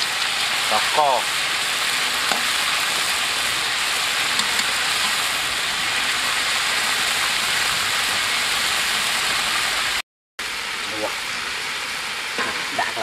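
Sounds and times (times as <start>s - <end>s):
deep-frying sizzle: 0.0s - 13.0s.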